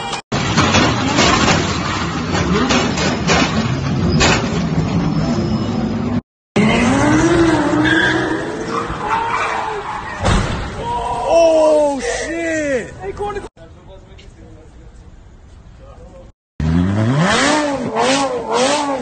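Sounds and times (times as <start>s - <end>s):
cars crashing: 0.4s - 11.1s
car engine revving: 6.6s - 9.1s, 16.6s - 19.0s.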